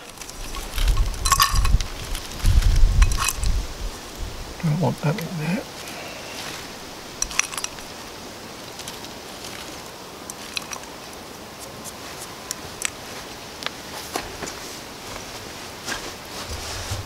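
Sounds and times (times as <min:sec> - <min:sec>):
steady outdoor hiss: 0:00.0 - 0:17.0.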